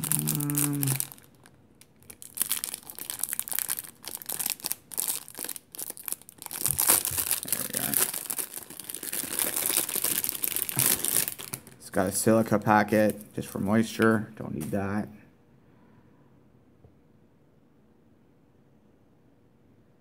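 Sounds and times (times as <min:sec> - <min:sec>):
plastic bag crinkling: 0:00.0 - 0:13.4.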